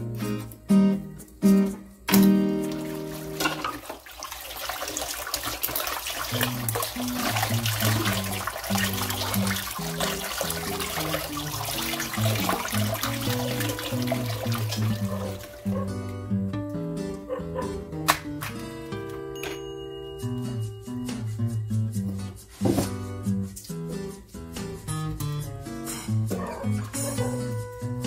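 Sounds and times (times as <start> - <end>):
guitar music: 0.0 - 3.8, 6.0 - 28.0
tap water running into metal pot: 2.1 - 15.9.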